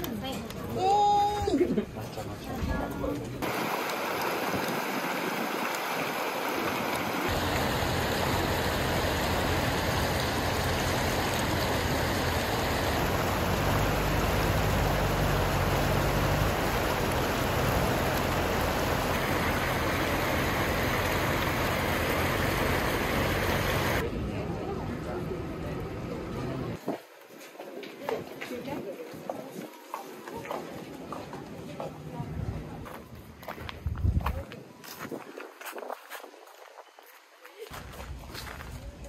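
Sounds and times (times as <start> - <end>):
water rushing over rocks: 3.4 - 24.0.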